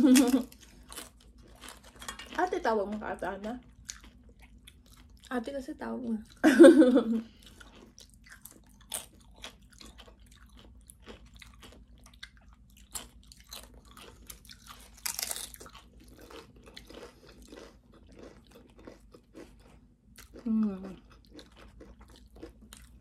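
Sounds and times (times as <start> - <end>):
chips crunching and chewing: 0.0 - 5.5, 7.3 - 23.0.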